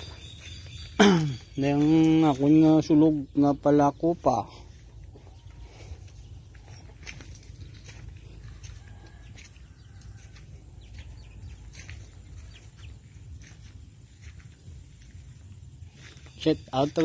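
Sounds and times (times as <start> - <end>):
birds chirping: 0.0 - 17.0
steady low rumble: 4.6 - 17.0.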